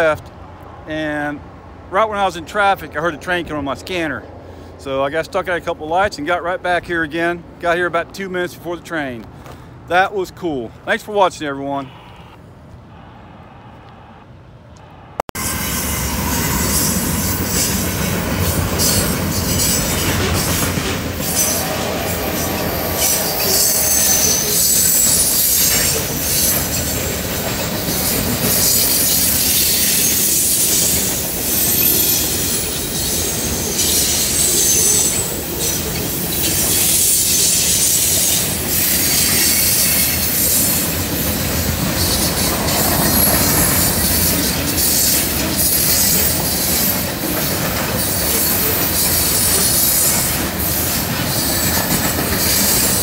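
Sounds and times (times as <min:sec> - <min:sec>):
diesel locomotives: 0:00.0 - 0:53.0
train wheels rumbling on rails: 0:15.4 - 0:53.0
high-pitched wheel squeals: 0:21.2 - 0:27.2, 0:27.9 - 0:40.8.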